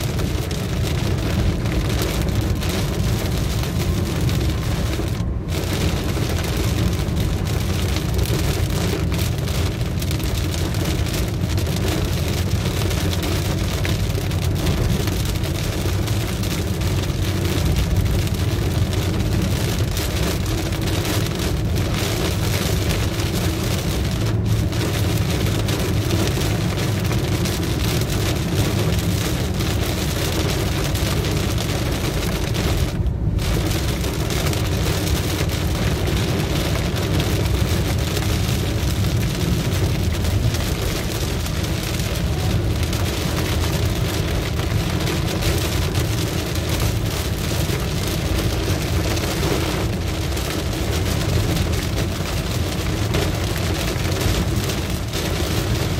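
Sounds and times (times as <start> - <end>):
car rumbling on wet road: 0.0 - 55.9
rain on car roof: 0.0 - 55.9.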